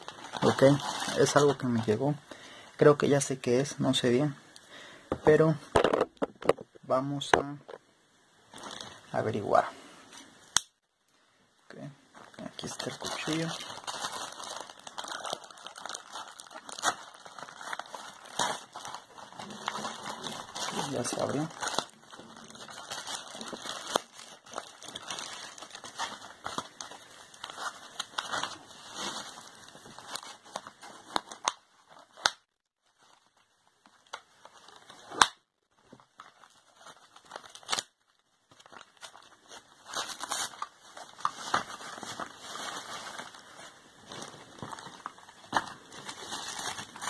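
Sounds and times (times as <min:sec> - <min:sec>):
plastic packaging crinkling: 0:00.0 - 0:02.0, 0:08.5 - 0:09.4, 0:12.2 - 0:35.3, 0:36.0 - 0:47.0
packing wrap tearing: 0:12.6 - 0:33.4, 0:36.2 - 0:43.4, 0:44.1 - 0:47.0.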